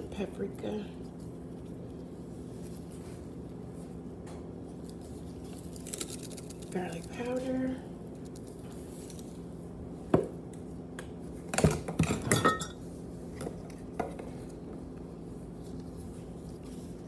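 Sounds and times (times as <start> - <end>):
kitchenware clinking and knocking: 12.0 - 12.8.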